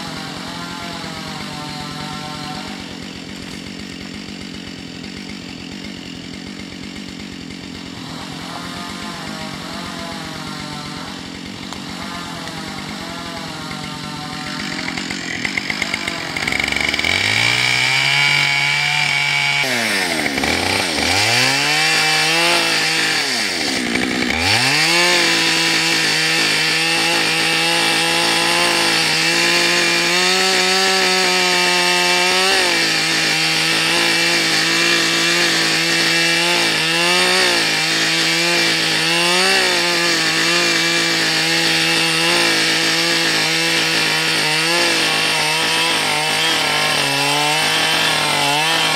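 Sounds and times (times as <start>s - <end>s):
chainsaw revving and cutting log: 0.0s - 48.9s.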